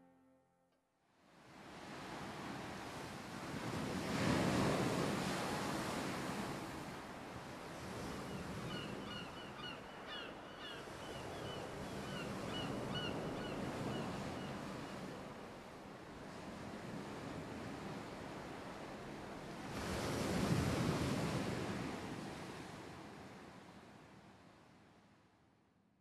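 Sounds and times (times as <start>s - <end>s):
surf washing in: 1.6s - 8.2s.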